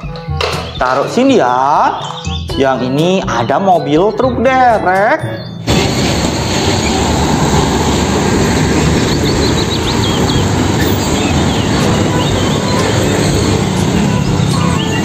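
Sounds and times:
road traffic passing: 5.6s - 15.0s.

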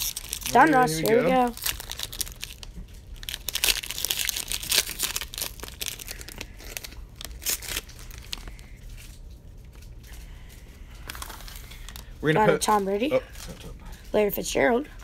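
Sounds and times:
wrappers tearing and crinkling: 0.0s - 14.0s.

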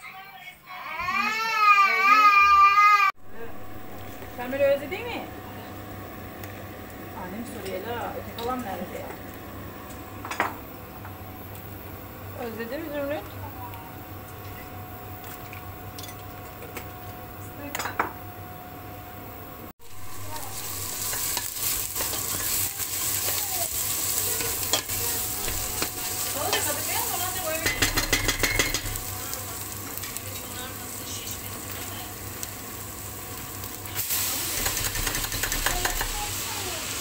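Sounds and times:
vegetables sizzling in oil: 19.8s - 37.0s.

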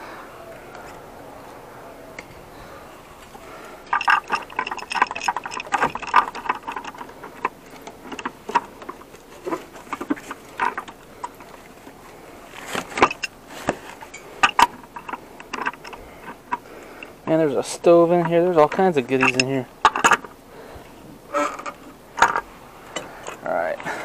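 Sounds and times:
wrench clinking on metal fittings: 3.9s - 11.5s, 12.7s - 13.4s, 14.0s - 16.7s, 18.1s - 20.3s.

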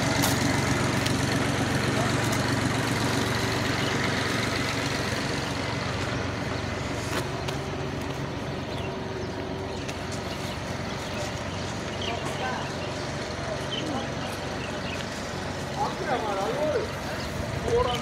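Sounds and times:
vehicle engine idling hum: 0.0s - 18.0s.

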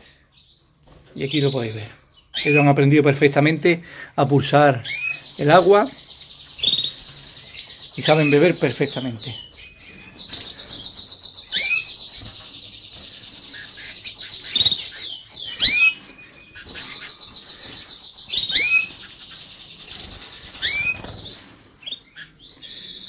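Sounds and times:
canaries trilling: 0.0s - 23.0s
wings fluttering: 12.1s - 22.3s.

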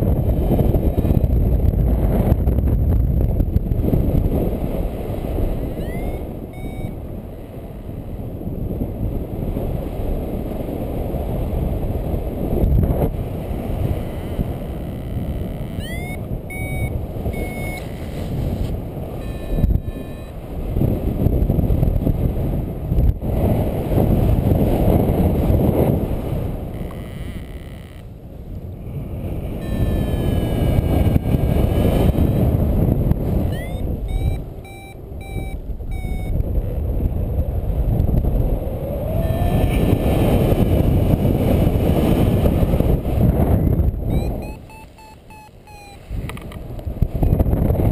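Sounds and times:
variometer gliding tone: 5.2s - 8.4s, 13.2s - 21.2s, 25.4s - 28.2s, 29.4s - 37.0s, 38.4s - 41.8s, 43.9s - 46.5s
variometer beeps: 5.6s - 8.0s, 13.8s - 20.6s, 26.7s - 28.1s, 29.6s - 32.8s, 33.4s - 36.5s, 39.0s - 40.0s, 44.1s - 46.5s.

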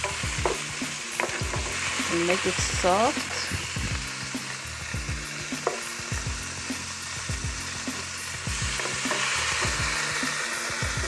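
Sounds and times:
vegetables sizzling in oil: 0.0s - 11.0s
wooden spoon scraping a pan: 1.2s - 2.4s.

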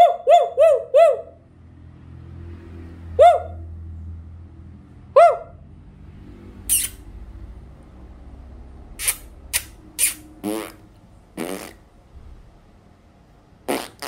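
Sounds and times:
mouth puffs: 6.7s - 7.0s, 9.0s - 10.8s
pitched mouth noises: 6.7s - 7.0s, 9.0s - 10.8s, 11.4s - 11.9s, 13.7s - 14.0s.

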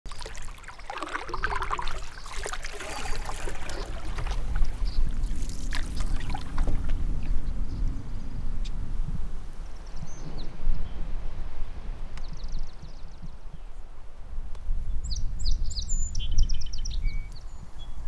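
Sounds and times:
water trickling and dripping: 0.1s - 7.3s
paddle strokes in water: 0.1s - 7.4s.

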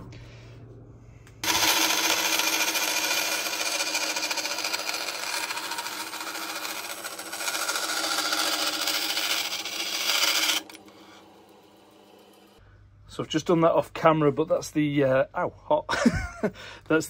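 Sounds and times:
bandsaw cutting metal: 1.4s - 12.6s.

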